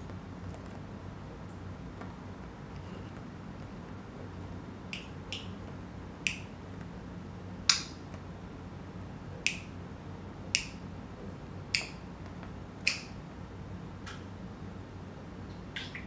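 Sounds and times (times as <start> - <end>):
budgerigar clicking: 4.9 - 5.6, 12.8 - 13.2.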